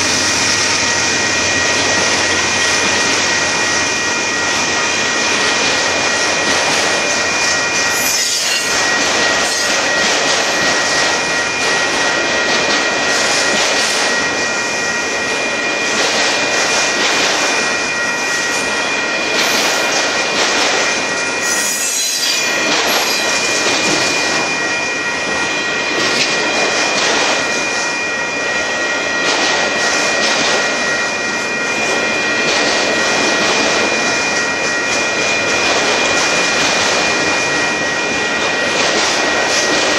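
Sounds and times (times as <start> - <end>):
train wheels rushing on rail: 0.0 - 39.9
high-pitched squealing: 21.4 - 23.5.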